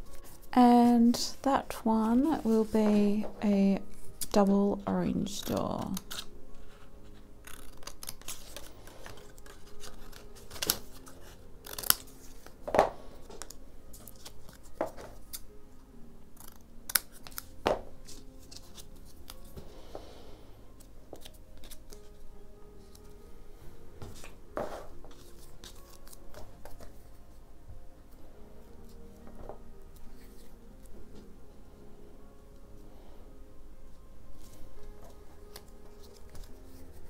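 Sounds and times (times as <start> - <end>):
paper being handled: 0.0 - 3.3, 5.2 - 15.4, 17.0 - 19.6, 21.1 - 22.2, 24.1 - 27.2, 34.4 - 37.0
scissors snipping paper: 5.2 - 6.8, 7.4 - 12.5, 16.4 - 19.5, 21.2 - 22.1, 25.2 - 26.9.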